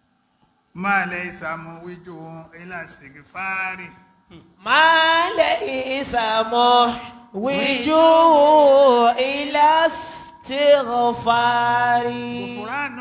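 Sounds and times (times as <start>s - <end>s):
man chanting through a microphone: 0.8s - 4.0s, 4.6s - 8.6s, 9.9s - 13.0s.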